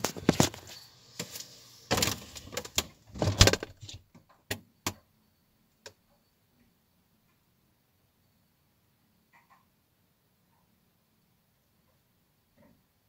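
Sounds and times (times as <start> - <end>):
fridge door shutting: 1.9 - 3.9.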